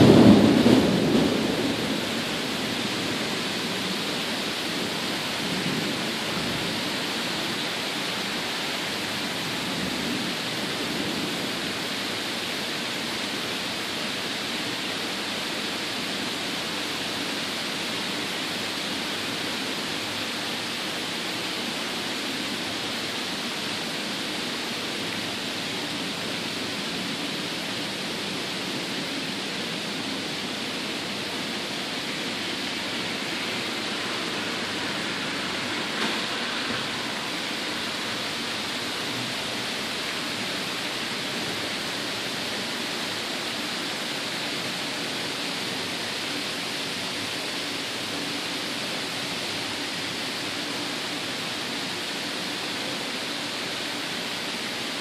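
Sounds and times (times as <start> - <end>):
distant thunder rumble: 0.0 - 3.2
heavy rain pouring: 0.0 - 55.0.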